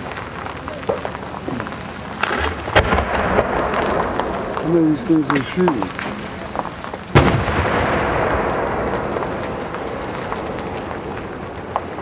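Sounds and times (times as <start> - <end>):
firework burst rumbling echo: 2.2 - 12.0.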